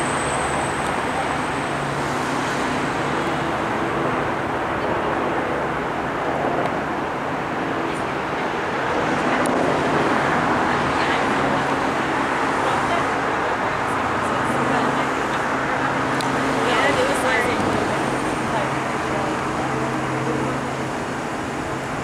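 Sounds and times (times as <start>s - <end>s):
helicopter rotor and engine drone: 0.0s - 22.0s.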